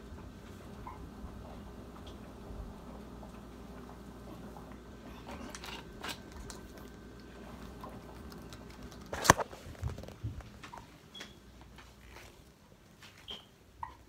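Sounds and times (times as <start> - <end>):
clothing rustling: 11.6 - 13.5.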